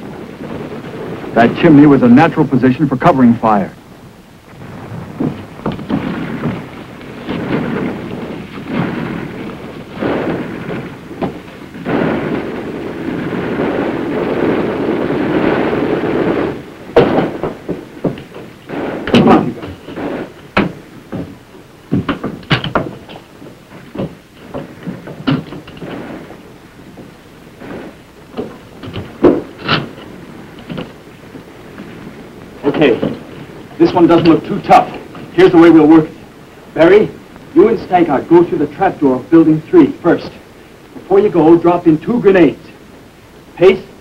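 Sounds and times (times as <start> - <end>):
steady rumbling: 0.0 - 44.0
sharp knocks and bangs: 4.5 - 36.0.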